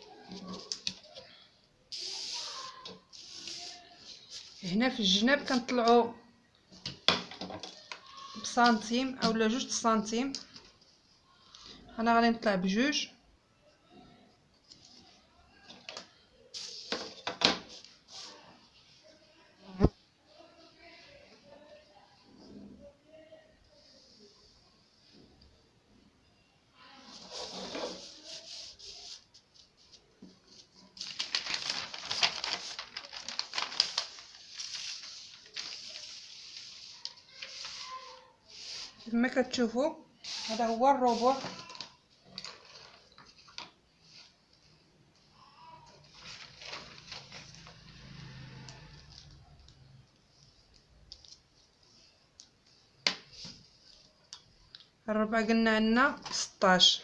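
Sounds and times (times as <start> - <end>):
paper rustling and crackling: 27.1 - 39.0, 40.2 - 44.3, 46.0 - 47.8.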